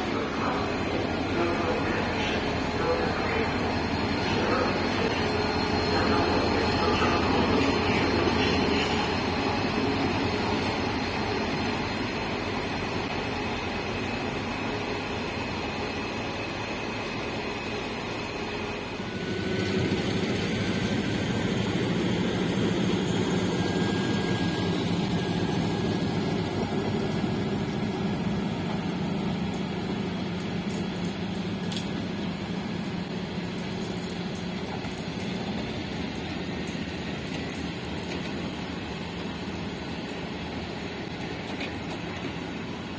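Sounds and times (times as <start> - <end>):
diesel locomotive running past: 0.0 - 42.9
shunting locomotive pulling wagons: 0.0 - 42.9.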